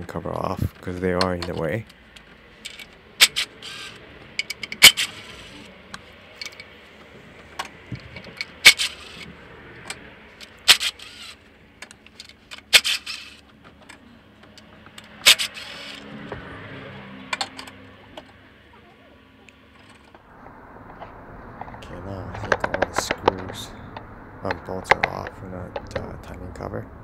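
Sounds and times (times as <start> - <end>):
cordless power tool whirring: 2.7 - 5.6, 10.5 - 11.4, 15.0 - 16.6.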